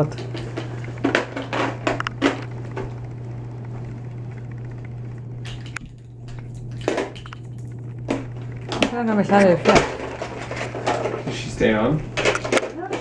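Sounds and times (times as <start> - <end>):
steady low hum: 0.0 - 13.0
plastic toys knocking and clicking: 12.2 - 13.0.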